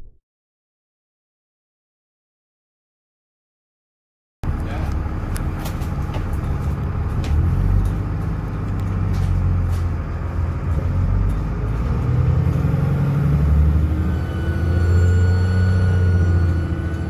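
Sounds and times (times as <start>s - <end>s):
bus diesel engine running: 4.4s - 17.0s.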